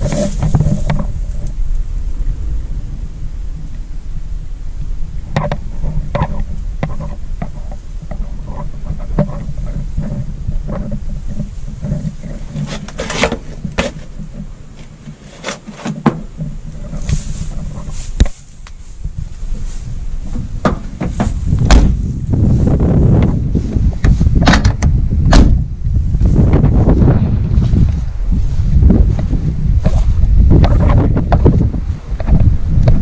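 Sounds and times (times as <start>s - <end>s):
wind rumble on microphone: 0.0s - 33.0s
knocks and clicks of movement: 5.3s - 18.8s, 20.3s - 22.0s.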